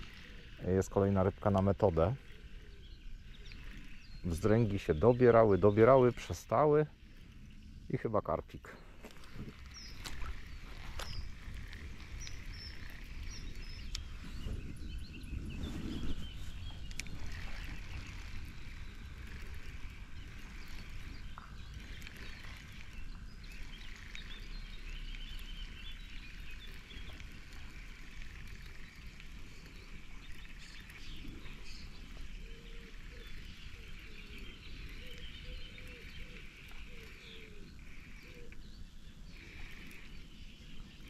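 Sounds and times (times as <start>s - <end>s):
birds calling: 0.0s - 41.0s
frogs calling: 0.0s - 41.0s
low wind rumble: 0.0s - 41.0s.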